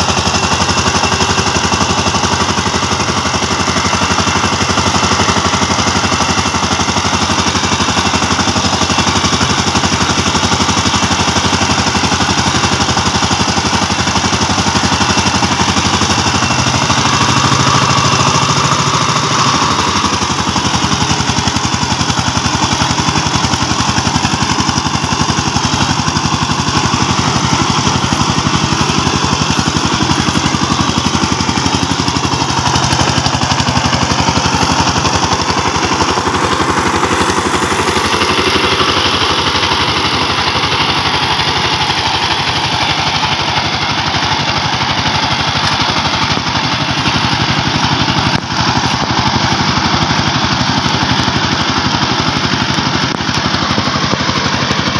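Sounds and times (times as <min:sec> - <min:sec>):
diesel engine running under load: 0:00.0 - 0:54.9.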